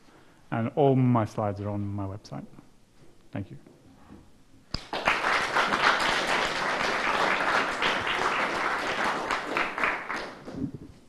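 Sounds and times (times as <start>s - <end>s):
audience applauding: 4.8s - 10.7s.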